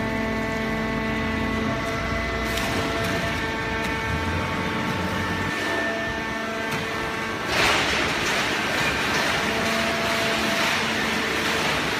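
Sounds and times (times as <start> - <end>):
baler machine hum: 0.0 - 11.9.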